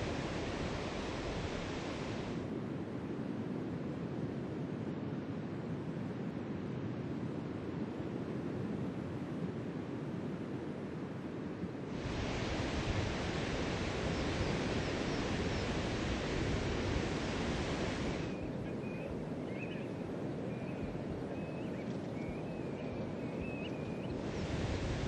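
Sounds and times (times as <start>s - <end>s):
wind: 0.0s - 25.0s
surf: 11.9s - 19.2s.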